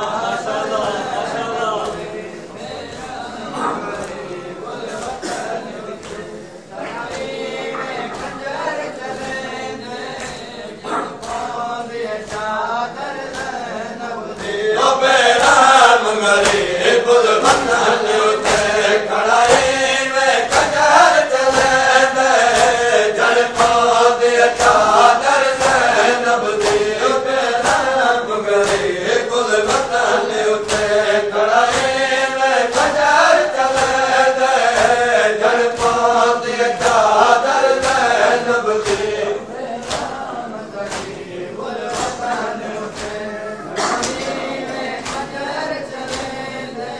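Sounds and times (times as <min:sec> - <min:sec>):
men chanting a lament: 0:00.0 - 0:46.9
chest-beating slaps: 0:07.0 - 0:08.5, 0:10.1 - 0:12.6, 0:13.2 - 0:13.7, 0:15.3 - 0:28.0, 0:28.6 - 0:45.4, 0:46.0 - 0:46.5.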